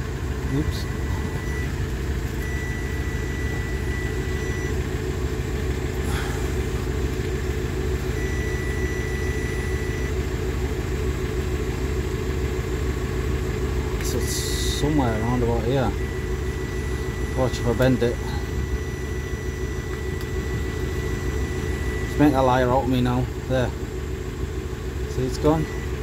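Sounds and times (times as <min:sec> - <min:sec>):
circuit tester high beep: 0:00.4 - 0:01.8, 0:02.4 - 0:04.9, 0:08.1 - 0:10.3, 0:14.0 - 0:23.8, 0:25.1 - 0:26.0
low rumble: 0:13.7 - 0:22.3.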